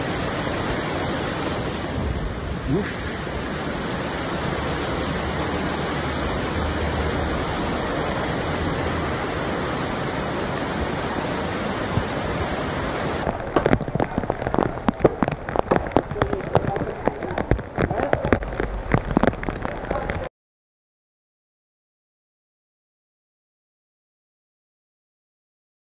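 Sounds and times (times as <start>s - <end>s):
floodwater rushing: 0.0s - 20.3s
raindrops tapping: 0.0s - 20.3s.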